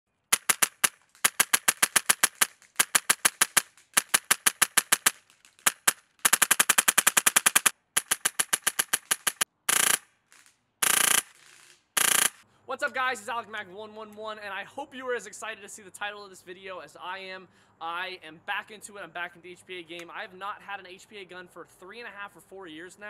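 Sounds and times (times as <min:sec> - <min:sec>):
airsoft rifle firing sharp pops: 0:00.3 - 0:10.0, 0:10.8 - 0:11.4, 0:12.0 - 0:12.4.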